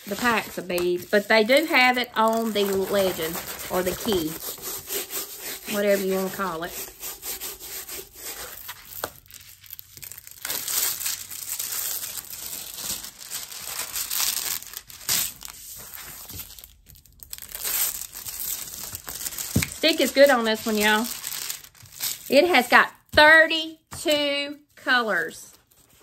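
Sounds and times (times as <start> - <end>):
canvas crinkling and rustling: 0.0 - 4.4, 8.5 - 22.5
plastic film peeling: 0.0 - 6.2, 6.8 - 22.4.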